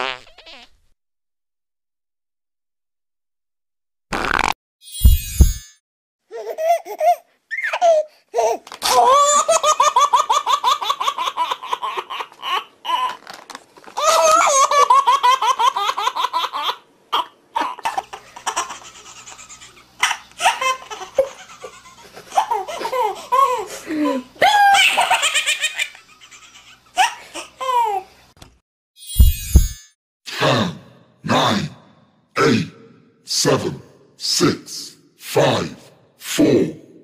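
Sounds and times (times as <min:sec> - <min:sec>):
baby laughing: 0:06.3 - 0:13.3, 0:14.0 - 0:28.1.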